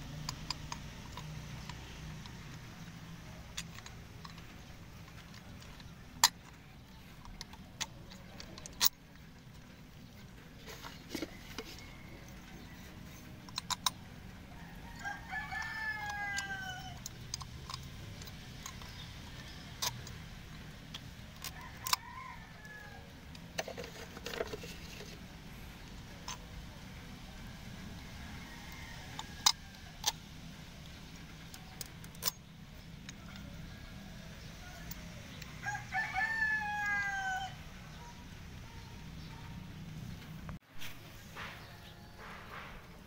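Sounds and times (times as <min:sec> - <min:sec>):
metal part clicking and tapping: 0:00.0 - 0:09.6, 0:10.6 - 0:14.1, 0:14.9 - 0:22.0, 0:29.1 - 0:33.5
rooster crowing: 0:11.3 - 0:13.0, 0:14.5 - 0:17.1, 0:21.4 - 0:23.2, 0:27.4 - 0:30.2, 0:33.2 - 0:38.2.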